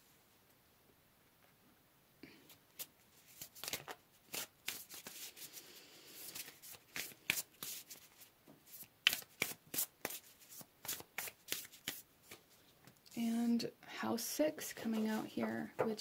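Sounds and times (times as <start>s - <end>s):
cards being shuffled: 2.8s - 5.6s, 6.2s - 13.0s.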